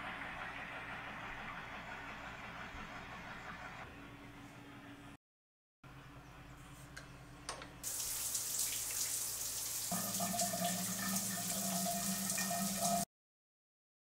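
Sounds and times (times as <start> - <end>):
shower water spraying: 7.8 - 13.1.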